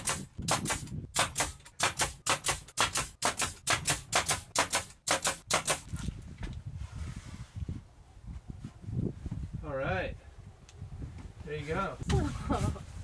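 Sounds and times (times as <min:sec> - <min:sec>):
nail gun firing: 0:00.0 - 0:05.9.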